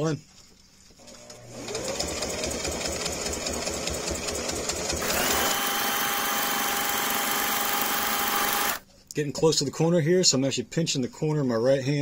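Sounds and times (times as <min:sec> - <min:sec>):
sewing machine stitching: 0:01.0 - 0:08.8.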